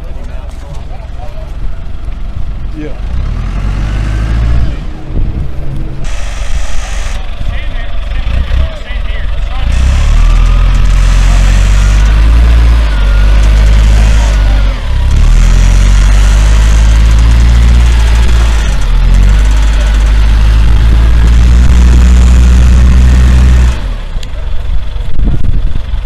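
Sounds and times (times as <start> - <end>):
heavy machine engine running: 0.0 - 26.0
faint voices of workers: 6.0 - 15.0.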